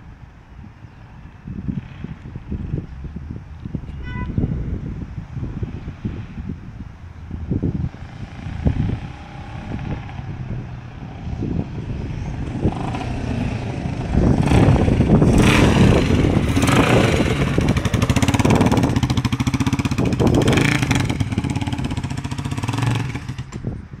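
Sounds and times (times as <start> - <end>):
motorcycle riding by: 7.5 - 23.8.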